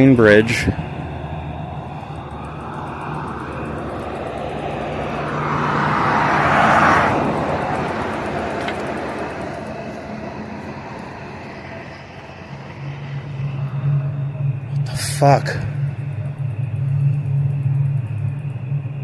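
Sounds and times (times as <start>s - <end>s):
vehicle passing by: 0.0s - 19.0s.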